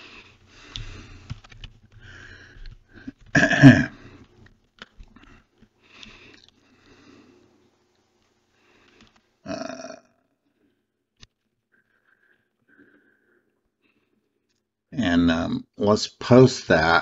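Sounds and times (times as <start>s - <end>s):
person breathing: 0.0s - 3.2s, 5.1s - 7.6s, 11.7s - 14.4s
keyboard typing clicks: 0.7s - 2.0s.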